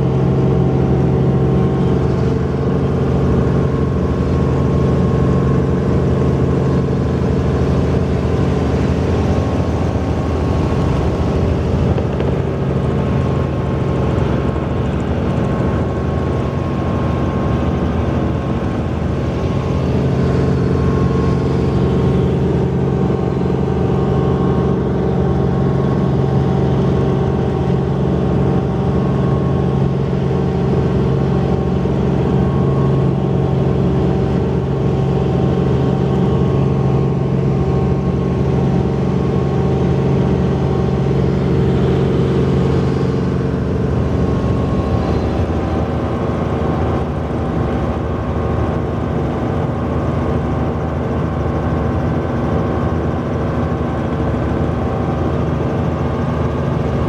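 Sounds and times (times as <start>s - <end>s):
helicopter engine and rotors drone: 0.0s - 57.0s.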